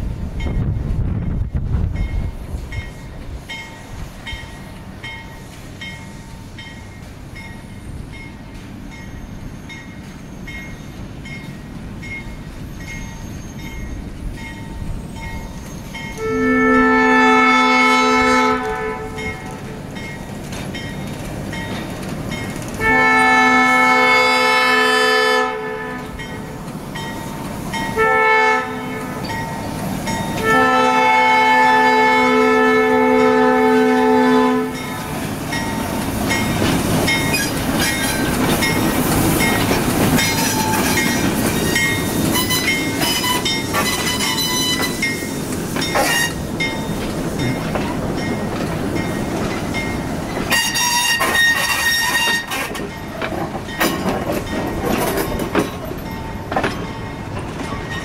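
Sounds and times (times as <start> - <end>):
locomotive rumbling past: 0.0 - 58.0
locomotive horn blasts: 16.1 - 19.8, 22.8 - 26.3, 27.9 - 29.3, 30.4 - 35.0, 50.5 - 52.6
train wheel clatter: 18.1 - 24.1, 25.5 - 31.9, 34.6 - 58.0.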